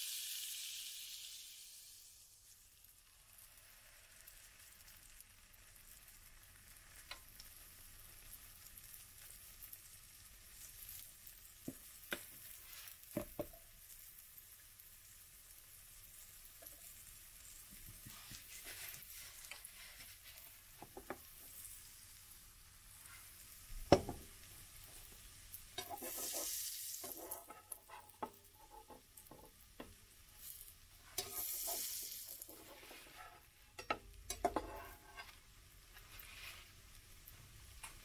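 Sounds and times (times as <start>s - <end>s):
pancake batter sizzling: 0.0s - 38.0s
metal spatula knocking on pan: 23.9s - 24.2s.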